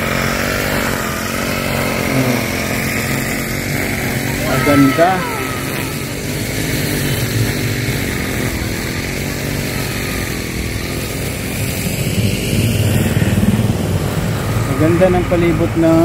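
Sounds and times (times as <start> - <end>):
small engine running: 0.0 - 16.0.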